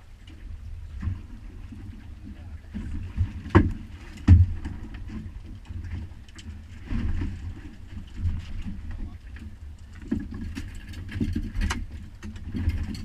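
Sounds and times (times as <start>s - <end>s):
low rumble of wind and water: 0.0s - 13.0s
knocks and thumps against boat: 0.2s - 13.0s.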